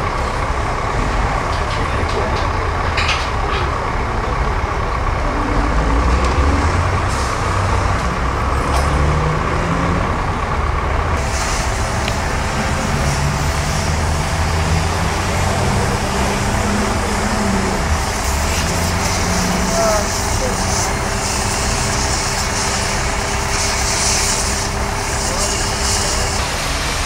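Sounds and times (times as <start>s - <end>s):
construction site noise: 0.0s - 27.0s
heavy engine rumbling: 0.0s - 27.0s.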